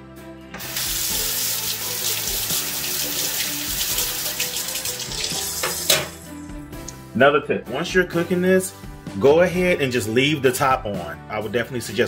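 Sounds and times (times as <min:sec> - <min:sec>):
spoon rinsed under water: 0:00.6 - 0:06.2
tap running into metal sink: 0:02.0 - 0:06.2.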